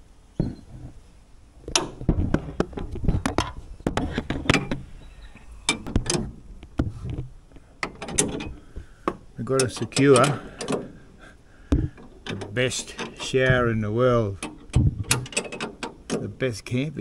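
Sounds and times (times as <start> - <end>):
metal spanners clinking: 9.4 - 11.0, 11.8 - 16.3.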